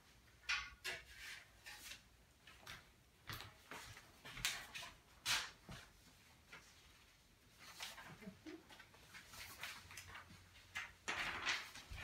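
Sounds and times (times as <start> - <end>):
paper rustling: 3.7 - 12.0.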